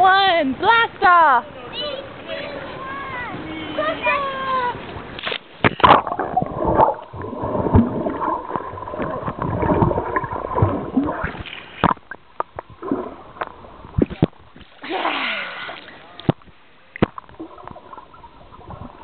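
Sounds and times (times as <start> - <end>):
sharp clicks underwater: 5.2 - 14.8, 15.8 - 18.9
underwater bubbling and gurgling: 5.6 - 14.8, 15.6 - 19.0
splash into pool: 14.0 - 16.0.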